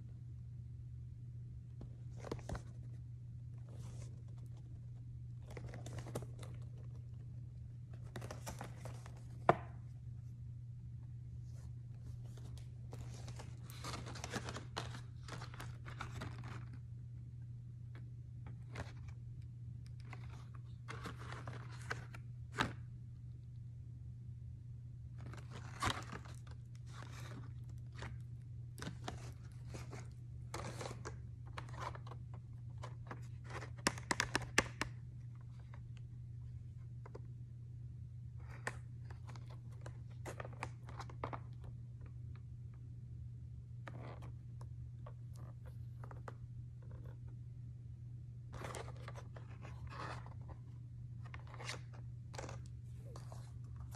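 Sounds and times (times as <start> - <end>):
low steady hum: 0.0 - 53.9
plastic packaging crinkling: 12.2 - 16.9.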